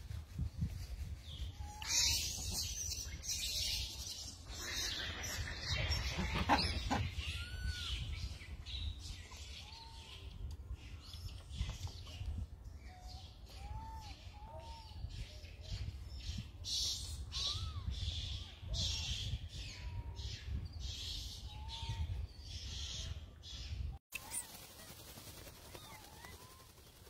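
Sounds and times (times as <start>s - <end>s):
rustling noise: 0.0s - 1.5s.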